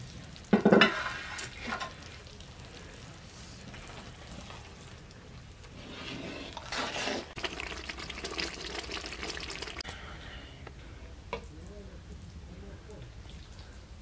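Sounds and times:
ladle scooping and pouring liquid: 0.9 - 9.8.

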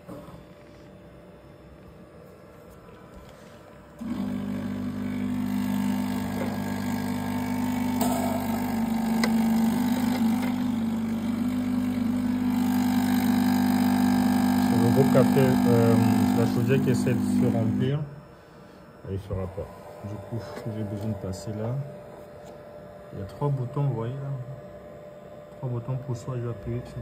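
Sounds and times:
water pump buzzing: 4.0 - 18.1.

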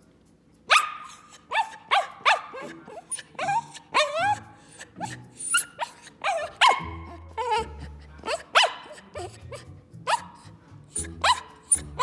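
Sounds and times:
small dog barking high-pitched: 0.7 - 7.7, 8.3 - 9.4, 10.1 - 10.4, 11.0 - 12.0.

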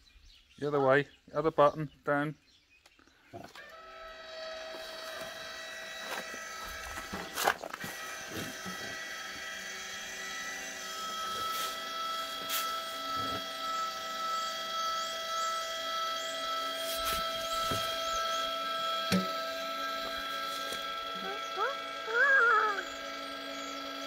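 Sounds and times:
electric actuator whine: 3.4 - 24.0.

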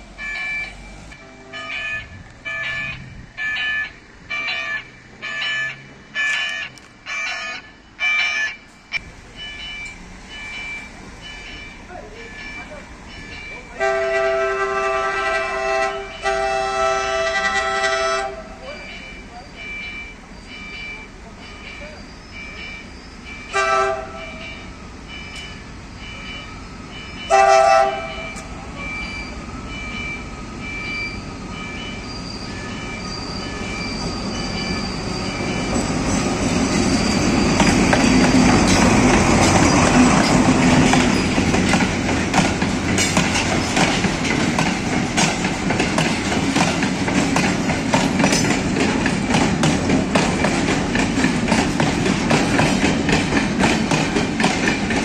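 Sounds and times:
locomotive engine passing: 0.0 - 55.0
locomotive horn blast: 1.1 - 3.8, 13.8 - 18.6, 23.5 - 24.7, 27.3 - 29.1
level crossing bell ringing: 1.4 - 13.8, 18.6 - 23.6
wagons rumbling: 31.2 - 55.0
wheels clicking over rail joints: 33.5 - 55.0.

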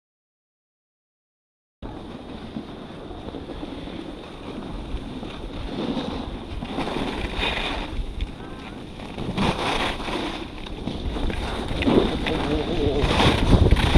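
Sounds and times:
wind rushing over microphone: 1.8 - 13.9
skis hissing over snow: 2.3 - 13.9.

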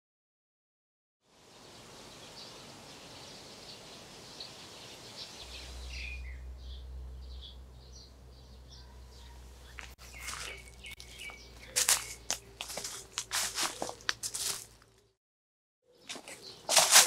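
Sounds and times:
steady outdoor hiss: 1.2 - 14.5
small birds chirping: 1.4 - 15.2, 15.8 - 17.0.

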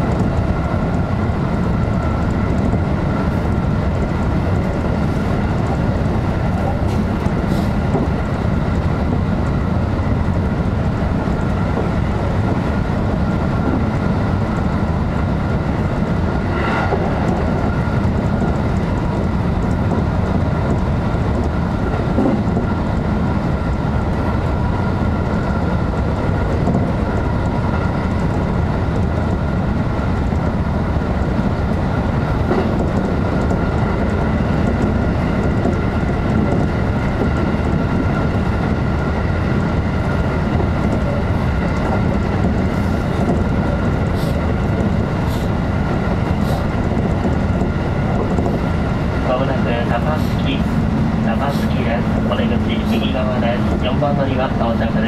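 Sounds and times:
train wheels rumbling on rail: 0.0 - 55.0
faint track clicks: 11.2 - 25.6, 26.2 - 55.0.

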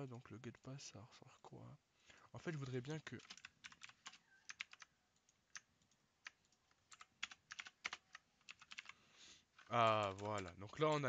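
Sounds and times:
keyboard typing: 2.4 - 11.0.

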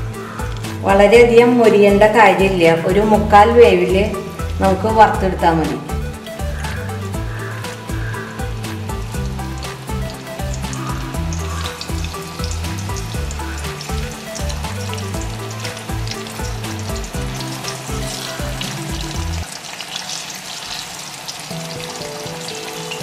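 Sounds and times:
chicken frying in hot oil: 0.0 - 0.8, 6.5 - 23.0
background music: 0.0 - 19.6, 21.5 - 23.0.

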